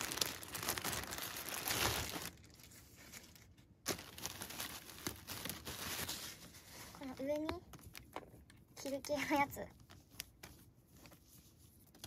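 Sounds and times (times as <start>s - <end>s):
plastic bag crinkling: 0.0s - 8.3s.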